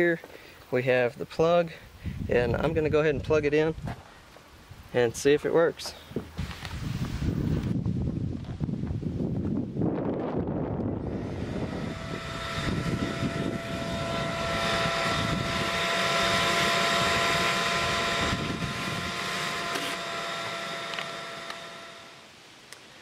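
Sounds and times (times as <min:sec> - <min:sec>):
shop vacuum motor whine: 0:10.2 - 0:22.3.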